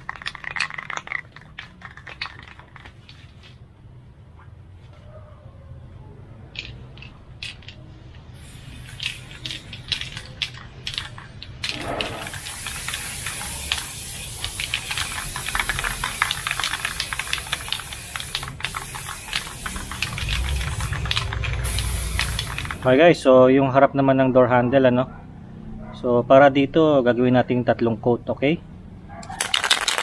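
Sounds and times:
short clicks and rattles: 0:00.0 - 0:03.2, 0:08.8 - 0:22.9
spray paint can hissing: 0:00.0 - 0:03.5, 0:06.6 - 0:23.0.

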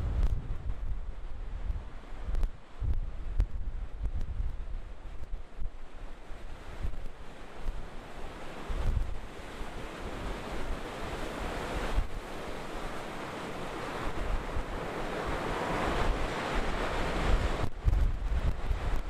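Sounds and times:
wind buffeting microphone: 0:00.0 - 0:19.0
ocean waves breaking: 0:04.8 - 0:19.0.

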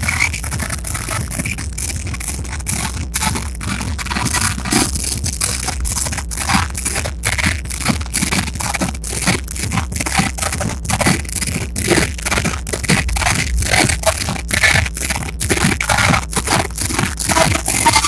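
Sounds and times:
distorted dance music loudspeaker: 0:00.0 - 0:18.0.

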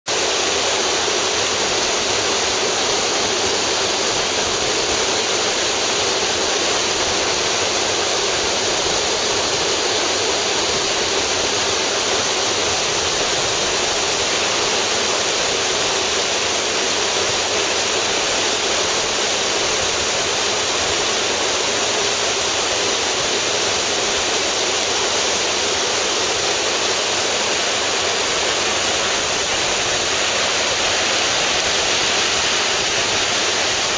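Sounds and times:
whitewater rushing over rocks: 0:00.1 - 0:33.9.

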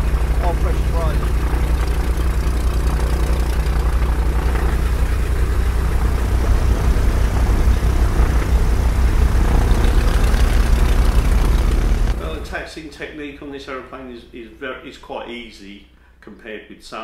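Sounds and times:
piston aircraft engines running: 0:00.0 - 0:12.6.

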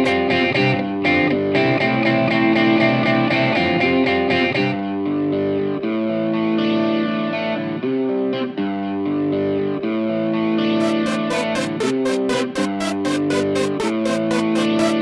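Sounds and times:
guitar with effects: 0:00.0 - 0:15.0
quick ticking beat: 0:10.8 - 0:15.0.

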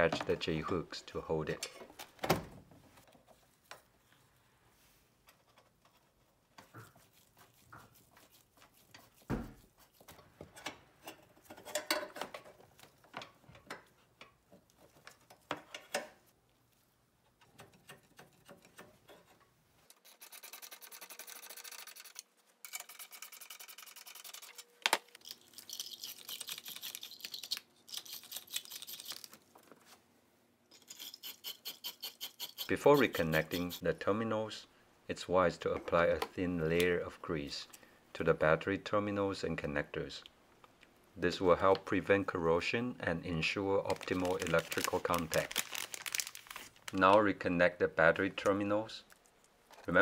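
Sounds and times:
brush scrubbing battery terminals: 0:30.7 - 0:33.9.

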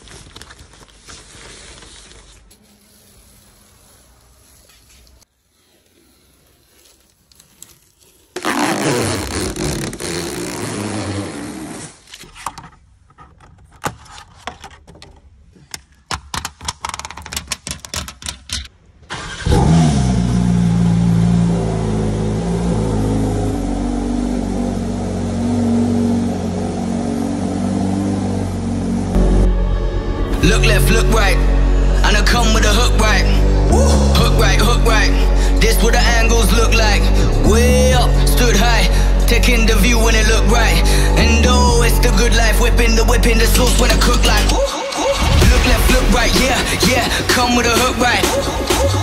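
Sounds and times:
sharp clicks and knocks: 0:12.3 - 0:18.8
car engine starting and idling: 0:19.0 - 0:49.0
loud noise: 0:43.5 - 0:49.0.

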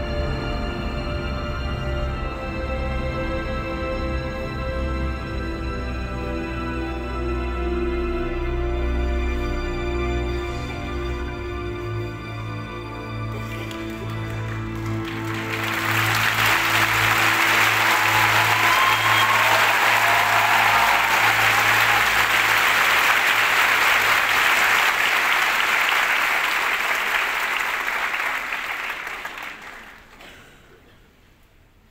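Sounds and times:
audience applauding: 0:13.3 - 0:30.4.

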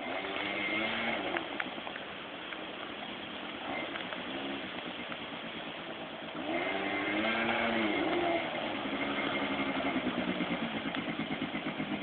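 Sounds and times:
quad bike engine revving: 0:00.0 - 0:01.7, 0:03.6 - 0:12.0.

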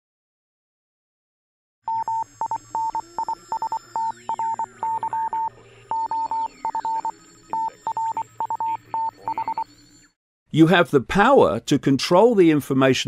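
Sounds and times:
morse code beeping tone: 0:01.9 - 0:09.8.

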